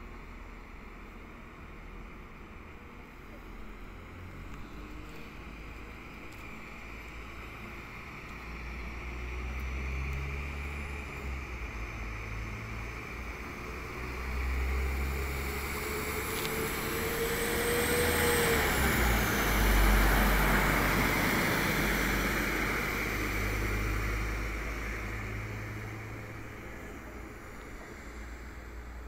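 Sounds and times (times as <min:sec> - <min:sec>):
train engine drone: 0:00.0 - 0:29.0
wheel and rail noise: 0:02.2 - 0:29.0
rising train whine: 0:06.5 - 0:29.0.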